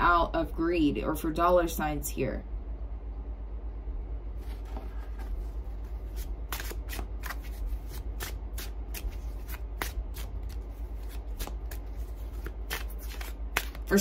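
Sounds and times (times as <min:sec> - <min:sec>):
steady low hum: 0:00.0 - 0:14.0
cards shuffled by hand: 0:04.4 - 0:14.0.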